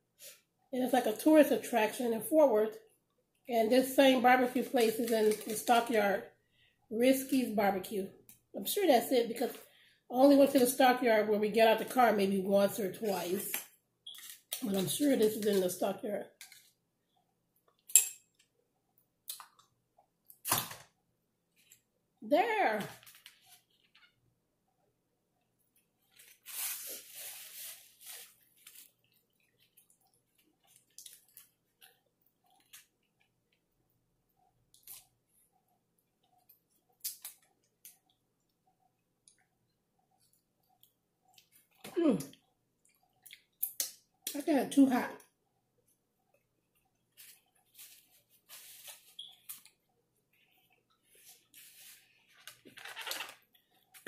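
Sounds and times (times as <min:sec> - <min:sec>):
chewing and smacking: 0:28.7 - 0:33.8, 0:40.2 - 0:44.0.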